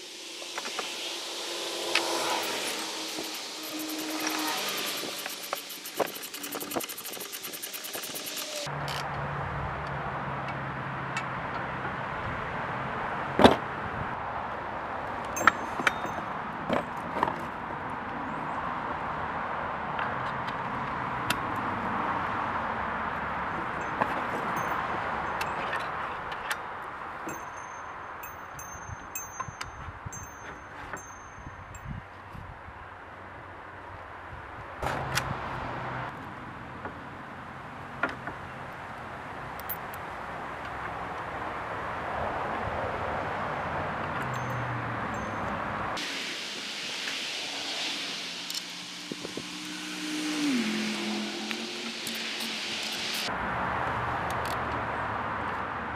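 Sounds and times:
outdoor background hiss: 0.0s - 8.7s, 44.2s - 53.3s
outdoor background noise: 0.0s - 55.9s
plastic and metal pieces clicking: 5.2s - 8.6s.

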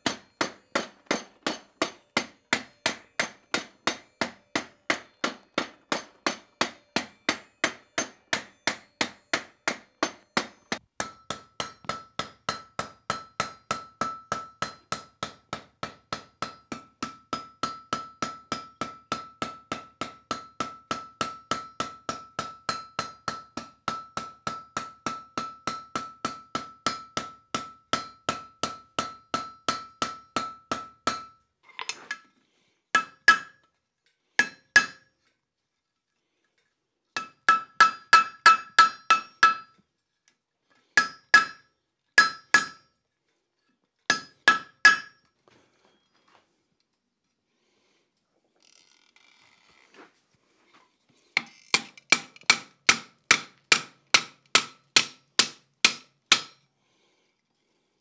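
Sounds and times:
anvil ringing: 0.0s - 15.1s, 37.2s - 39.7s, 41.0s - 42.9s, 44.1s - 45.2s.

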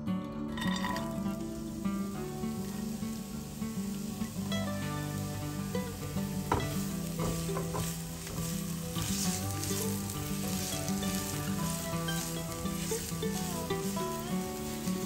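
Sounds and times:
onion sizzling in oil: 0.3s - 15.0s
spatula scraping a pan: 4.0s - 15.0s.

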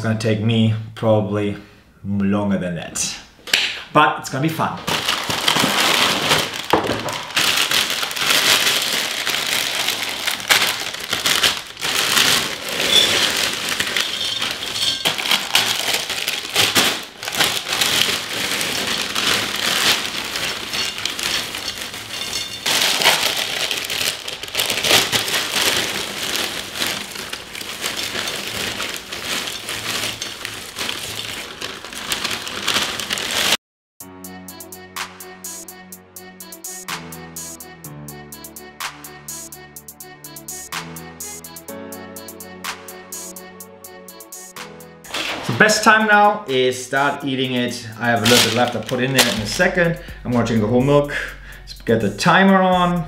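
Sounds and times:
cereal pouring into glass bowl: 5.0s - 33.6s
music: 6.3s - 24.8s, 34.0s - 53.0s.

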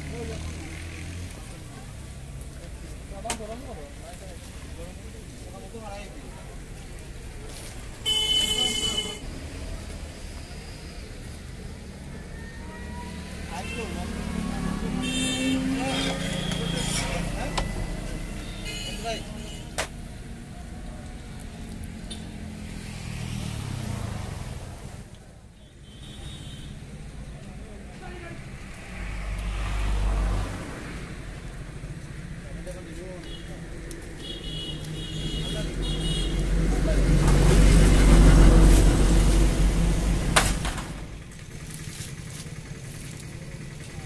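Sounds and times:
motor vehicle passing: 0.0s - 3.0s, 9.2s - 18.6s, 20.0s - 25.2s, 27.3s - 44.0s
low engine-like rumble: 36.6s - 44.0s.

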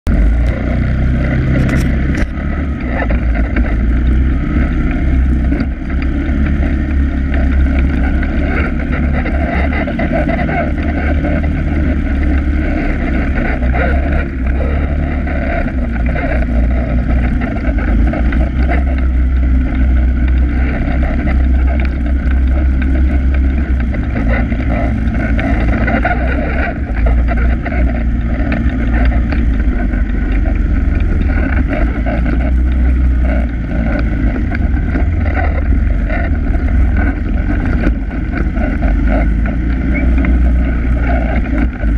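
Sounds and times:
atv engine running: 0.0s - 41.9s.

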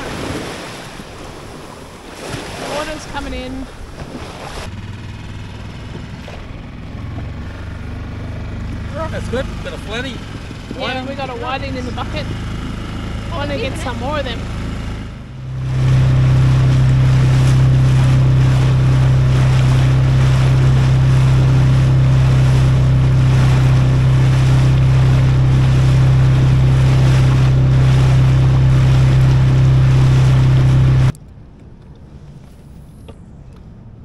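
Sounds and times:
water rushing past: 0.0s - 31.2s
outboard motor running: 0.0s - 34.0s
wind buffeting microphone: 9.4s - 31.1s.

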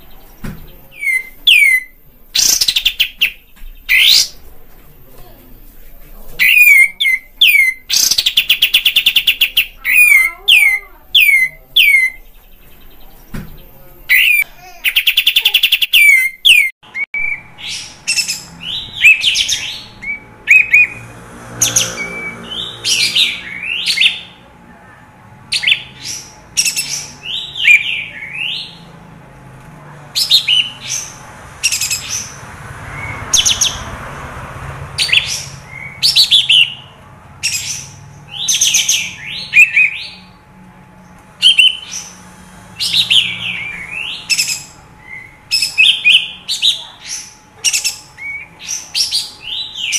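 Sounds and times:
bird singing chattering notes: 0.0s - 5.1s, 6.4s - 20.9s.

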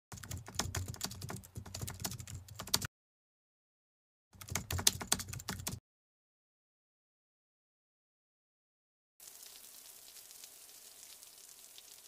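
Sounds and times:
keyboard typing clicks: 4.4s - 5.8s.

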